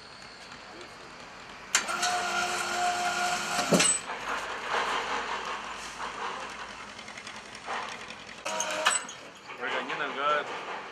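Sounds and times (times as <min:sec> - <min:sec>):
electric winch motor whine: 0:01.7 - 0:04.1, 0:08.4 - 0:09.3
winch clunk: 0:01.7 - 0:10.9.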